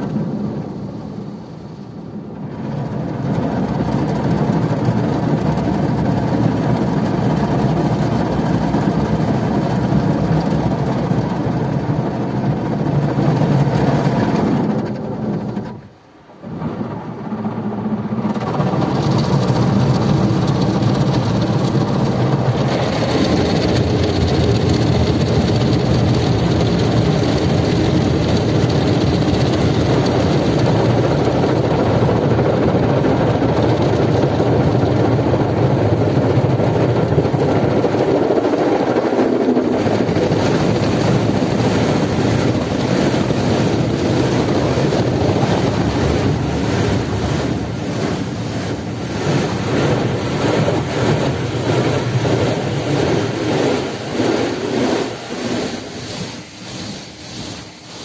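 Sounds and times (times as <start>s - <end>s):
car wash machinery rumble: 0.0s - 58.0s
water jets spraying windshield: 0.0s - 58.0s.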